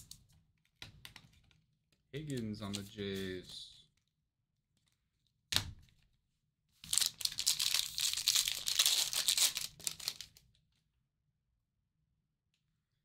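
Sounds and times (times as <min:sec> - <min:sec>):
wrapper tearing and crinkling: 0:06.8 - 0:10.4.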